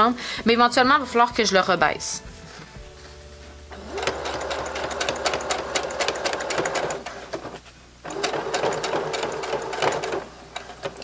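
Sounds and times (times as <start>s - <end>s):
sewing machine motor hum: 3.7s - 11.0s
sewing machine needle clicking: 4.0s - 7.4s, 8.1s - 11.0s.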